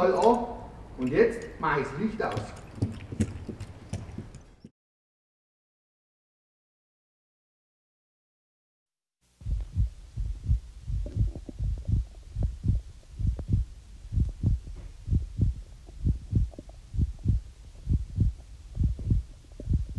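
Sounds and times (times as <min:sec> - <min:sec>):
heartbeat thumps: 0:09.4 - 0:19.9.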